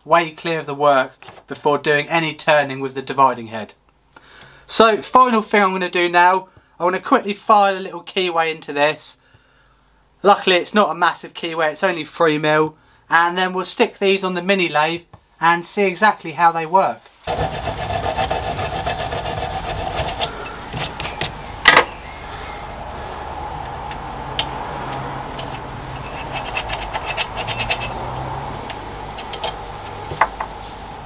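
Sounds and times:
hand file rasping metal: 0:17.3 - 0:21.3, 0:25.3 - 0:29.9.

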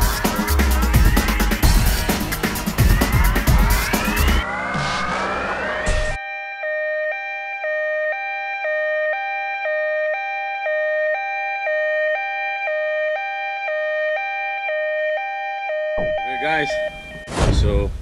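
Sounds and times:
electronic two-tone alarm: 0:04.0 - 0:17.4.

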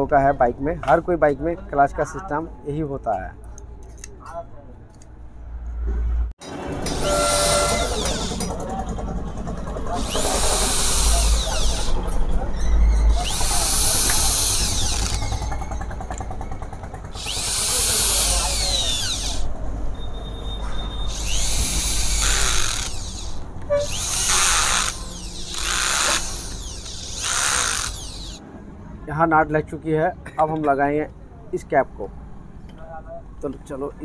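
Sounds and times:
power drill motor whine: 0:06.8 - 0:08.5, 0:10.0 - 0:12.0, 0:13.1 - 0:16.3, 0:17.0 - 0:19.5, 0:21.1 - 0:28.4.

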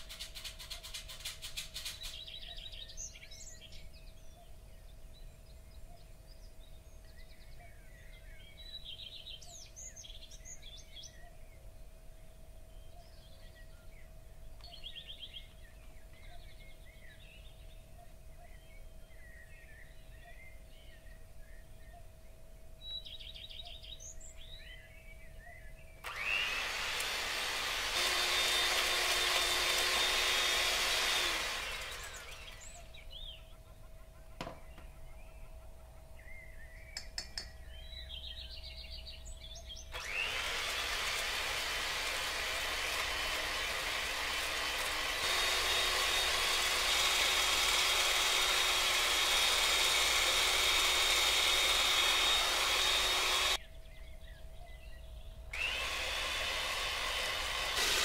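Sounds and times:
birds chirping faintly: 0:00.0 - 0:57.8
electric hand mixer whining: 0:26.0 - 0:32.8, 0:40.0 - 0:53.6, 0:55.6 - 0:58.0.

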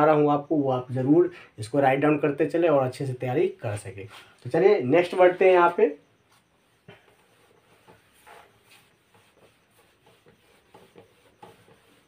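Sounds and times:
whiteboard wiping and marker scratching: 0:05.0 - 0:12.0.

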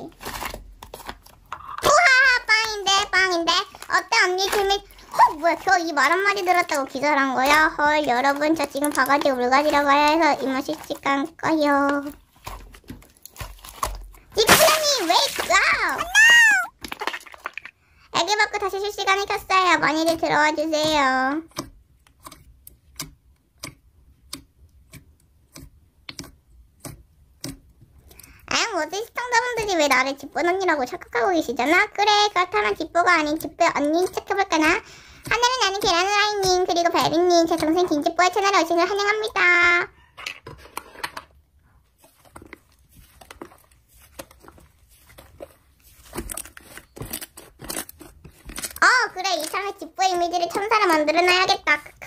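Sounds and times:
slime crackling and popping: 0:00.0 - 0:11.4, 0:12.0 - 0:17.7.

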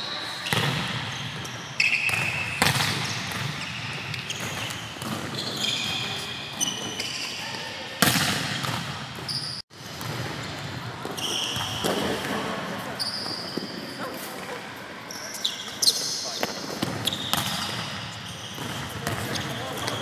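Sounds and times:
shoe squeaks: 0:00.0 - 0:07.8, 0:09.3 - 0:09.6, 0:11.2 - 0:12.2, 0:13.0 - 0:14.2, 0:15.1 - 0:16.4, 0:17.0 - 0:17.6.

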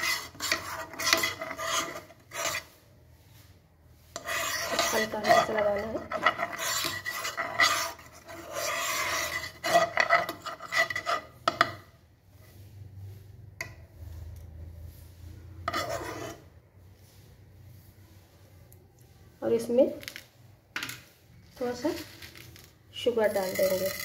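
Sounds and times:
spoon scraping frying pan: 0:00.0 - 0:02.8, 0:04.1 - 0:12.5, 0:15.5 - 0:16.6, 0:23.1 - 0:24.0.

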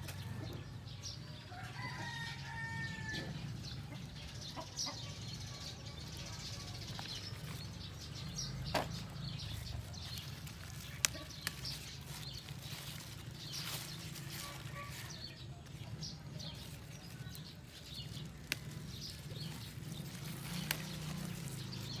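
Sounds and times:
lettuce leaves rustling: 0:06.2 - 0:22.0.

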